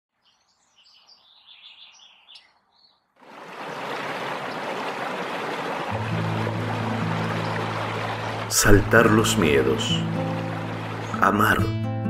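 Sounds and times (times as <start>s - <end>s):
birds chirping faintly: 0.1s - 11.4s
river rapids rushing: 3.2s - 11.3s.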